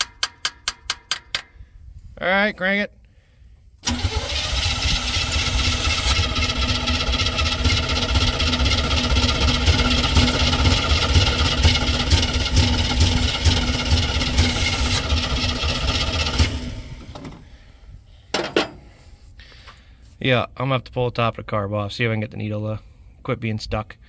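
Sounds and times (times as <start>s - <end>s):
engine cranking on starter: 3.8s - 17.4s.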